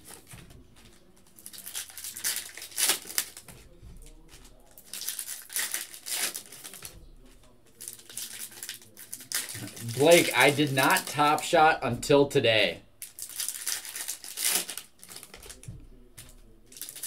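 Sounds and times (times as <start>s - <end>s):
foil wrappers crinkling and tearing: 0.0s - 3.5s, 4.2s - 6.9s, 7.8s - 11.4s, 13.0s - 15.7s, 16.7s - 17.0s.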